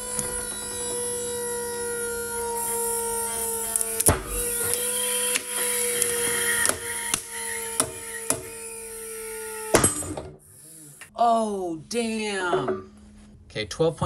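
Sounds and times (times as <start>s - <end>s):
motor whining: 0.0s - 11.1s.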